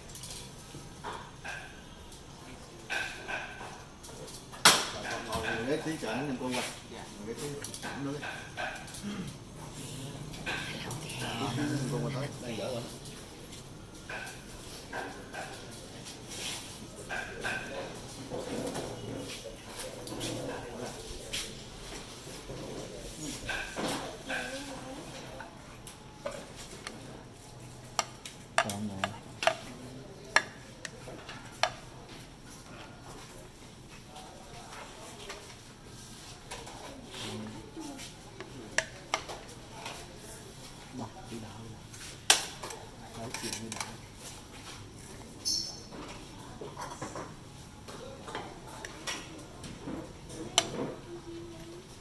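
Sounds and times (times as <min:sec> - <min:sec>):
utensils clinking on metal trays: 0:00.0 - 0:09.4, 0:10.3 - 0:40.4, 0:41.3 - 0:51.0.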